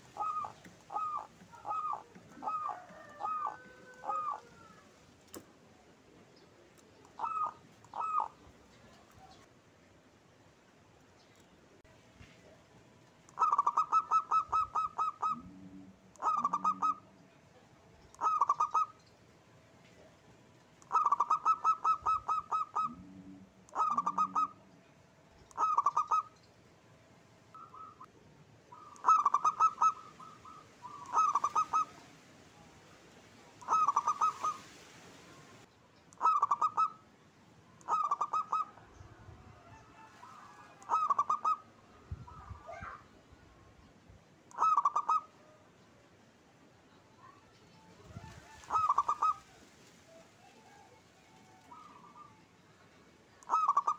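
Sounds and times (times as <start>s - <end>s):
dove cooing rapidly: 0.0s - 4.9s, 7.1s - 8.4s, 13.3s - 17.1s, 18.2s - 19.0s, 20.8s - 24.6s, 25.5s - 26.3s, 28.7s - 32.1s, 33.6s - 34.7s, 36.2s - 37.0s, 37.8s - 43.0s, 44.5s - 45.4s, 48.0s - 50.8s, 51.6s - 52.4s, 53.4s - 53.9s.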